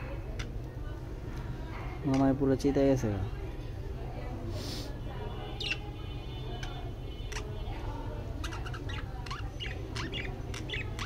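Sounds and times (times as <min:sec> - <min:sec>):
budgies chirping: 0:05.4 - 0:11.0.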